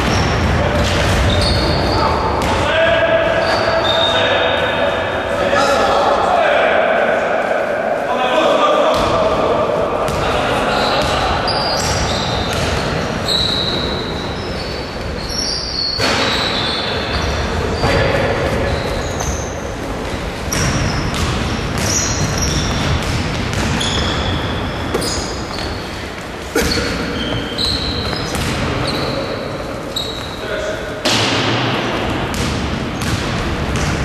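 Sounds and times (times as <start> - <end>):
shoes squeaking on wooden floor: 1.2 - 2.4, 3.3 - 4.2, 10.8 - 19.7, 20.5 - 23.0, 23.6 - 30.5.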